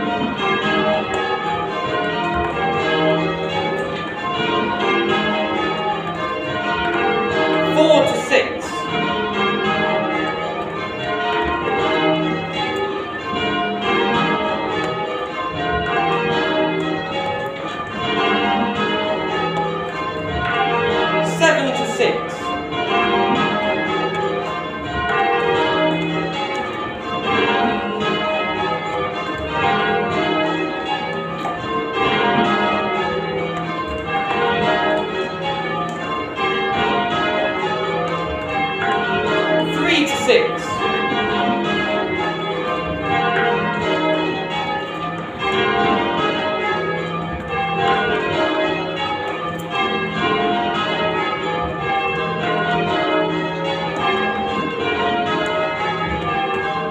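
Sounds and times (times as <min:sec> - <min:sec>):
church bells ringing: 0:00.0 - 0:56.9.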